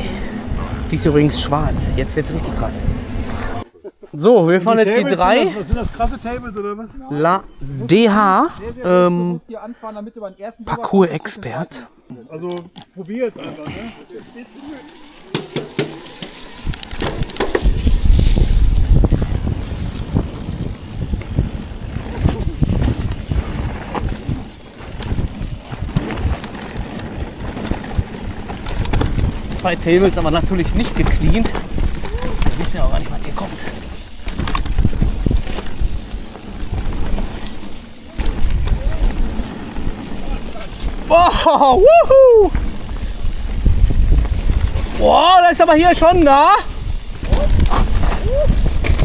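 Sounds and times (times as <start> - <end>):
bike rattling over bumps: 0.0 - 3.6, 13.1 - 49.0
wind buffeting microphone: 0.0 - 3.6, 16.5 - 49.0
tyres on dirt: 12.1 - 49.0
bike clicks and knocks: 14.9 - 41.1, 42.4 - 45.3, 46.8 - 49.0.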